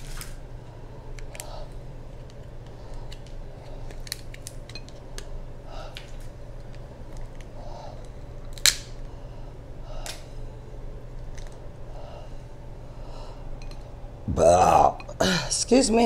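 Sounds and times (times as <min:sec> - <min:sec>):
shellfish shells cracking: 0:02.3 - 0:05.3, 0:05.9 - 0:09.0.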